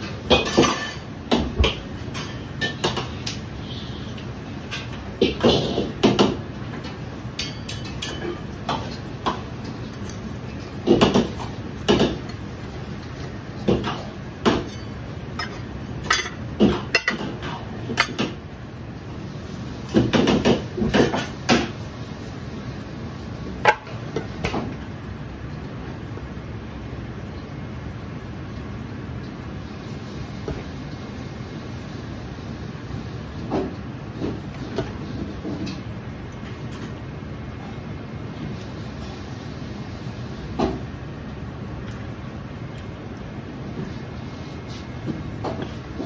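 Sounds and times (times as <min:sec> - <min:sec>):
kitchen background hum: 0:00.0 - 0:46.0
metal utensils clanking on wok: 0:14.6 - 0:18.3.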